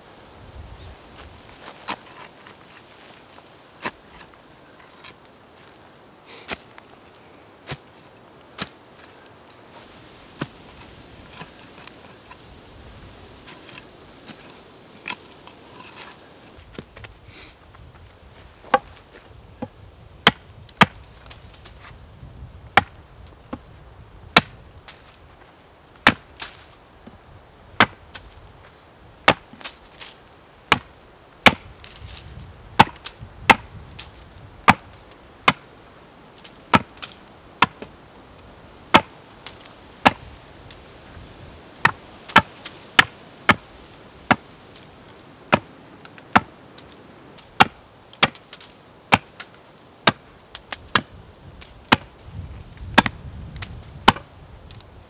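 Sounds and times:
axe chopping wood: 18.7s - 18.9s, 19.6s - 21.0s, 22.7s - 23.6s, 24.4s - 24.6s, 26.0s - 26.6s, 27.8s - 28.2s, 29.2s - 29.8s, 30.7s - 32.0s, 32.8s - 33.8s, 34.6s - 35.7s, 36.6s - 37.9s, 38.9s - 40.3s, 41.8s - 43.7s, 44.3s - 44.5s, 45.5s - 46.5s, 47.4s - 52.1s, 52.9s - 54.3s.

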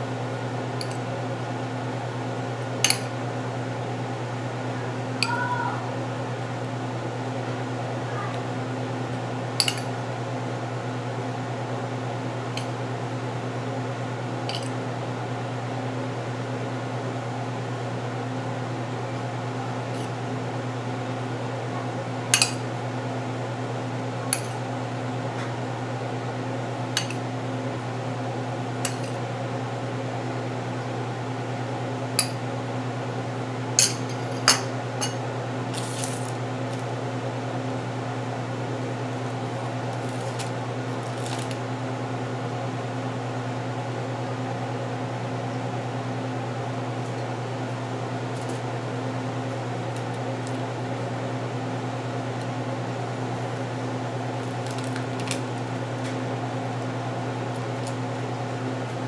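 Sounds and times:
low electrical hum: 0.0s - 59.0s
metal spoon clinking ceramic bowl: 9.6s - 9.8s.

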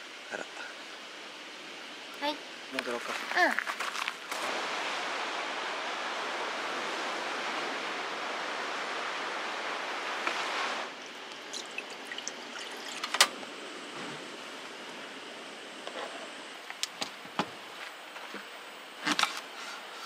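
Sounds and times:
water running: 11.0s - 13.3s.

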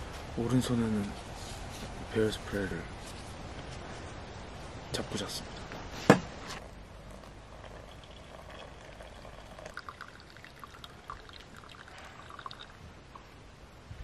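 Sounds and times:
water pouring from kettle: 7.0s - 12.8s.

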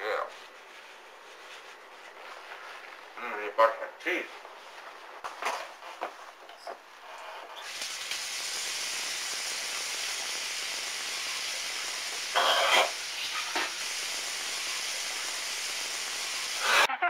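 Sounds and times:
water running from sink tap: 7.6s - 16.8s.

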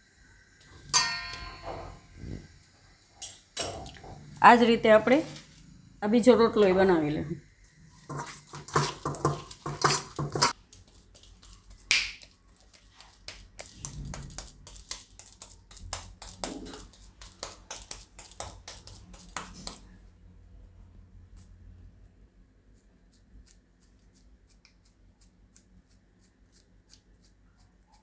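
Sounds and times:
hands kneading dough: 8.0s - 28.0s
hands patting dough slaps: 8.5s - 20.0s.

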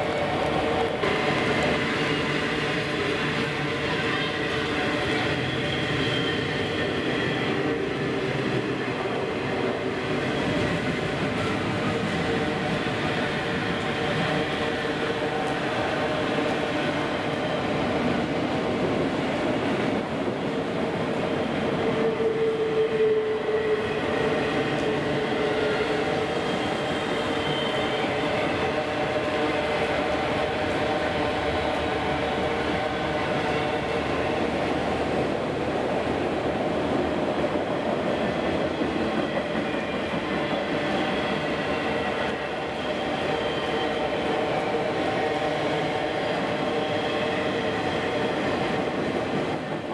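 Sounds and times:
train wheels rumbling on rail: 0.0s - 49.9s.

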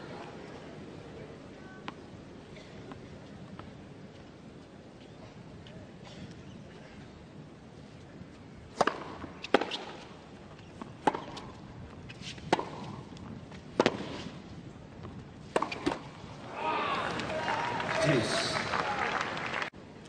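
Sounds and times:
tennis ball hit with racquets: 8.7s - 10.1s, 10.8s - 11.6s, 12.2s - 14.3s, 15.4s - 16.1s.

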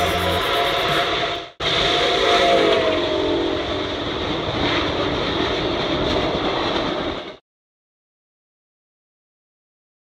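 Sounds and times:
steam locomotive whistle: 0.0s - 3.8s
train rumbling past: 0.0s - 7.4s.

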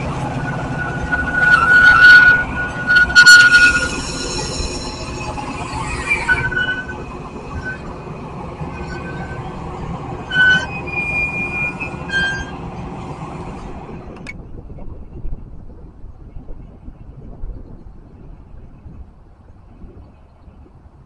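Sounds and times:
high metallic squeals: 0.0s - 13.8s
train wheels rumbling on rails: 0.0s - 21.0s.

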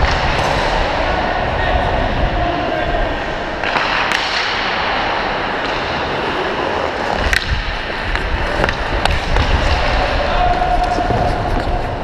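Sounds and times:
skate blades scraping ice: 3.2s - 12.0s
sticks or puck clicking: 3.6s - 4.8s, 5.6s - 11.8s.

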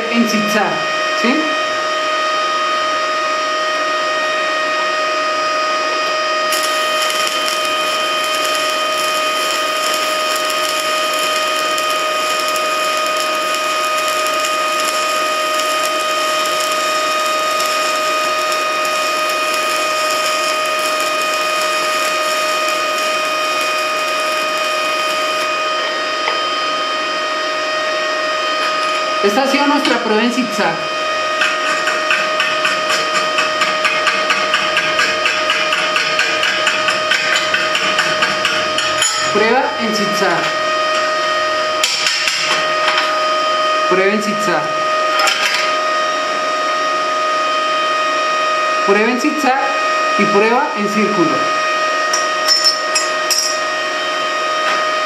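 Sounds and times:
welding machine high whine: 0.0s - 55.0s
welding arc crackling: 5.9s - 26.2s.

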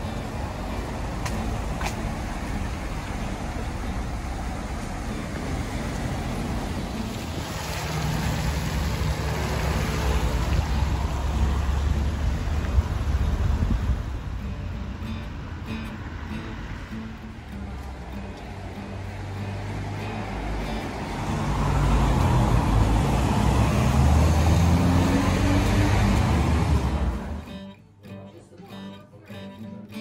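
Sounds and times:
tyres hissing on wet road: 0.0s - 14.4s, 16.1s - 27.5s
low engine rumble: 0.0s - 27.6s.

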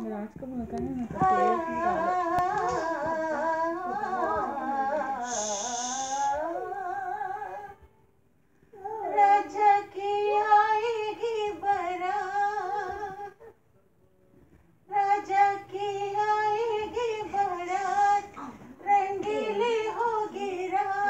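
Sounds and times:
person singing unaccompanied: 0.0s - 7.9s, 8.8s - 13.5s, 14.9s - 21.0s.

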